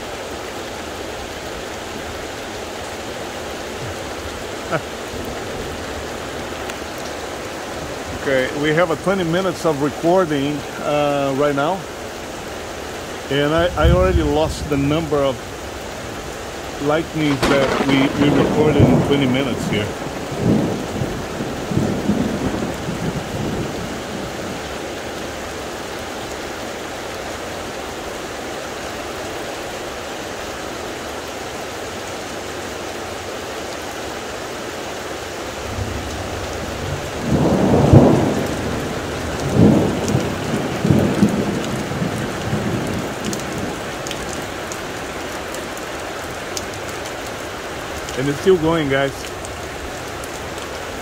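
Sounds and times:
steady rain falling: 0:00.0 - 0:51.0
thunder rumbling: 0:13.4 - 0:16.2, 0:16.8 - 0:24.6, 0:35.6 - 0:44.4
loud thunderclap: 0:13.6 - 0:15.1, 0:17.1 - 0:23.8, 0:35.7 - 0:43.7.

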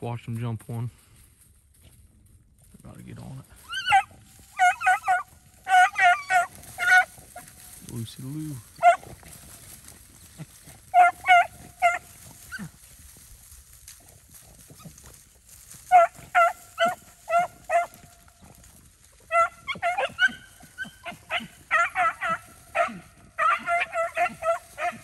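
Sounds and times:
hounds baying: 0:03.6 - 0:25.0.

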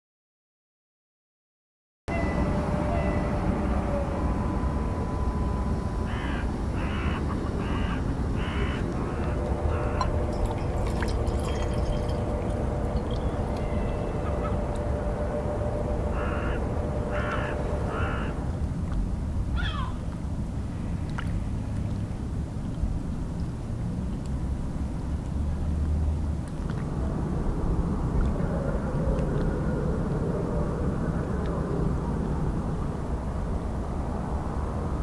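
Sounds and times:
steady low rumble: 0:02.1 - 0:35.0
crow cawing: 0:06.1 - 0:10.1, 0:16.1 - 0:18.4, 0:19.6 - 0:20.0.

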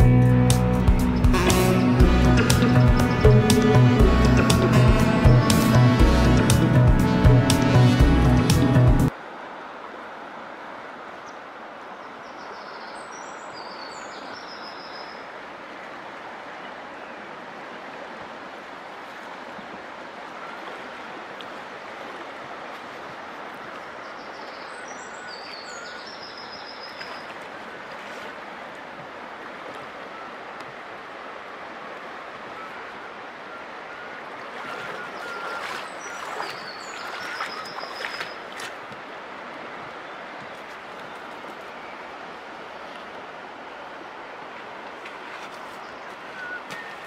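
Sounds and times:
river water rushing: 0:00.0 - 0:47.0
footsteps on river pebbles: 0:34.6 - 0:39.0, 0:45.1 - 0:47.0.

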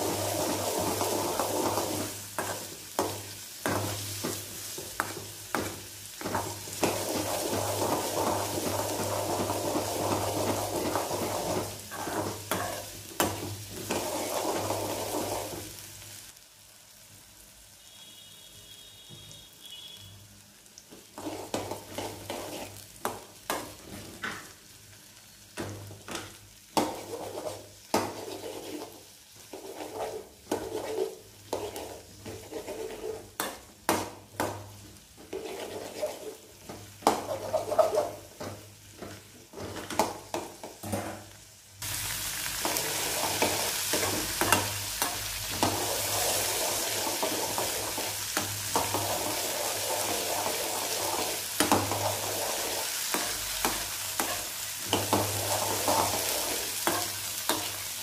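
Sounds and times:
oil sizzling: 0:00.0 - 0:58.0
metal spoon scraping a pan: 0:00.8 - 0:15.5, 0:21.2 - 0:22.8, 0:26.8 - 0:33.6, 0:35.2 - 0:38.3, 0:42.6 - 0:57.8.

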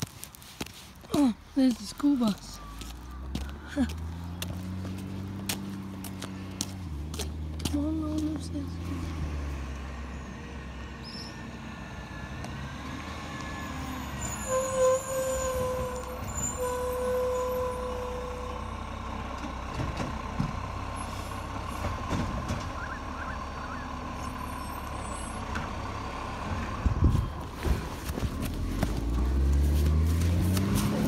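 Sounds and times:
diesel engine rumbling: 0:00.0 - 0:31.0
long steady squeal: 0:13.6 - 0:18.7.

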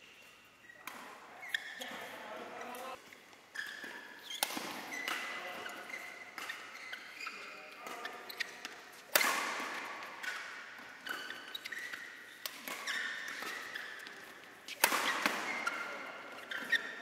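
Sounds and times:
shoes squeaking on floor: 0:00.0 - 0:17.0
rackets hitting shuttlecock: 0:03.6 - 0:17.0.

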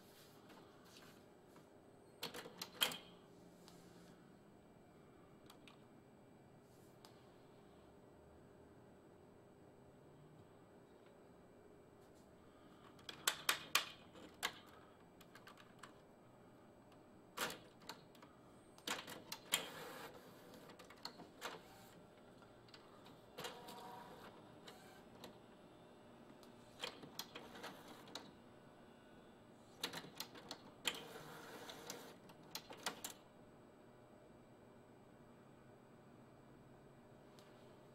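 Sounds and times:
printer motor whirring: 0:22.8 - 0:25.6.

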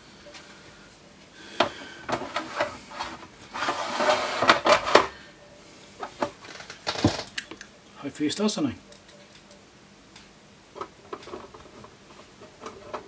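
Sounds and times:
cover scraping and knocking: 0:01.6 - 0:05.1.

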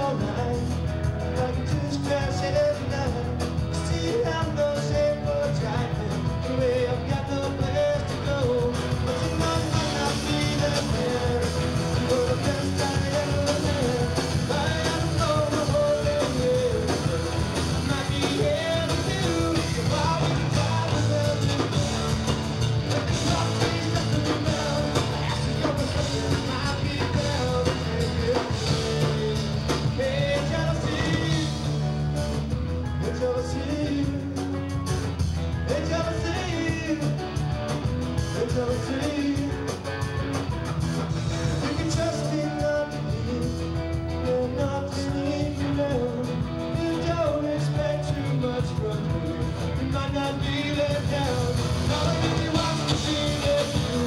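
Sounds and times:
person singing lead vocal: 0:00.0 - 0:32.1, 0:32.8 - 0:37.4, 0:38.2 - 0:40.1, 0:41.4 - 0:54.0
drum kit: 0:00.0 - 0:54.0
electric and acoustic guitars: 0:00.0 - 0:54.0.

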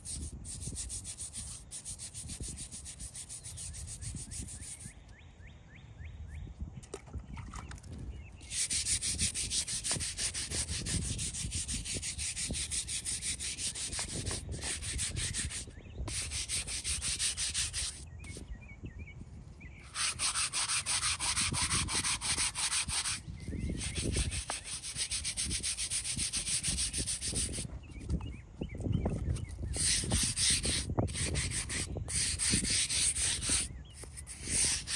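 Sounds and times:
brush scrubbing stone: 0:00.0 - 0:04.9, 0:08.4 - 0:18.0, 0:19.9 - 0:27.7, 0:29.7 - 0:34.9.

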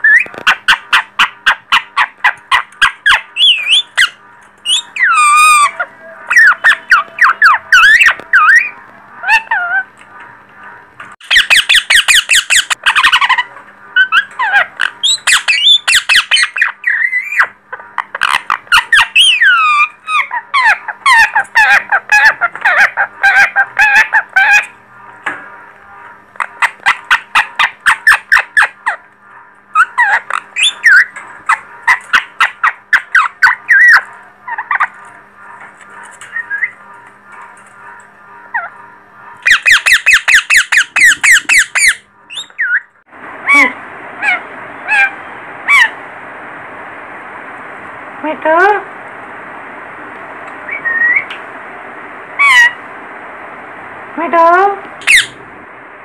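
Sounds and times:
parakeets squawking and chattering: 0:00.0 - 0:10.5, 0:11.2 - 0:46.1, 0:50.5 - 0:51.4, 0:52.3 - 0:52.9, 0:55.0 - 0:55.4.

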